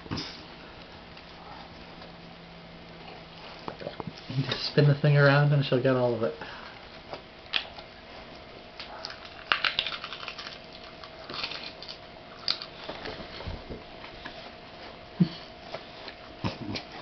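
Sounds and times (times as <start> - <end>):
dog crunching corn: 8.7 - 13.2.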